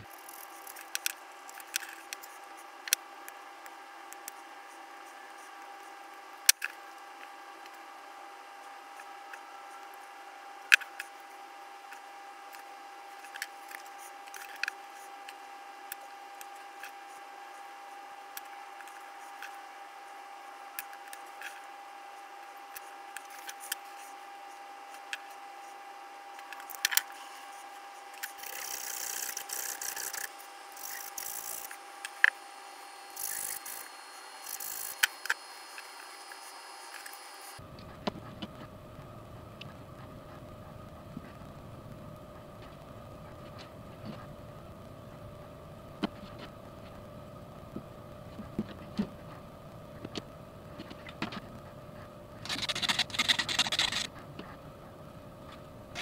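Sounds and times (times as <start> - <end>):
faint steady whine: 0.0 - 56.0
scratchy rubbing: 27.4 - 32.2, 52.4 - 54.6
small model car parts clicking: 52.5 - 54.1.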